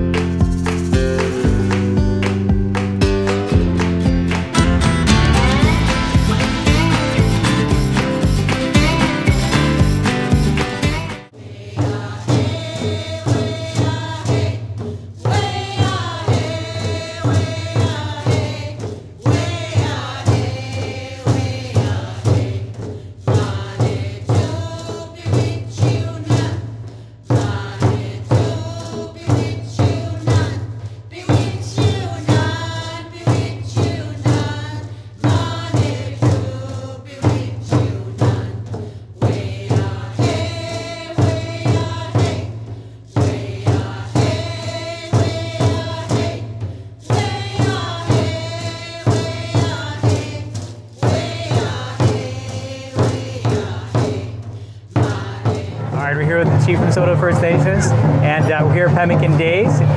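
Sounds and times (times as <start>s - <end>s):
drum beating steady rhythm: 0.0s - 59.9s.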